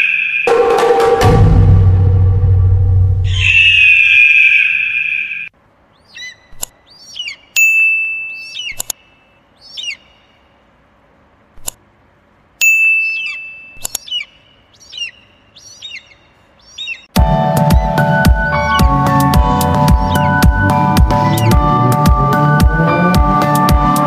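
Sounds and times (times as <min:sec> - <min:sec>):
electronic music: 0:00.5 - 0:03.9, 0:17.2 - 0:24.0
short bird-like chirps: 0:03.3 - 0:10.4, 0:12.8 - 0:17.1
ringing ding: 0:12.6 - 0:13.8.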